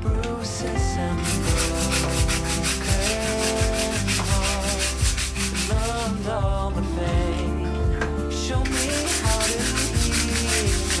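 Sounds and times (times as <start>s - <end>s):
background music: 0.0s - 11.0s
brush scrubbing wet wood: 1.2s - 6.3s, 8.6s - 11.0s.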